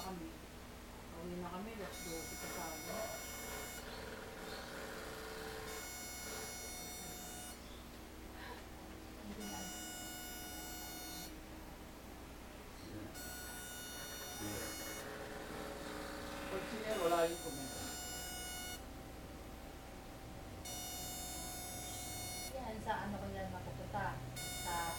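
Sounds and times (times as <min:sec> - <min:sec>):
pulsing high-pitched electrical buzz: 0:00.0 - 0:00.3, 0:01.6 - 0:07.8, 0:09.3 - 0:11.4, 0:13.1 - 0:19.0, 0:20.6 - 0:24.9
low steady hum: 0:00.0 - 0:24.9.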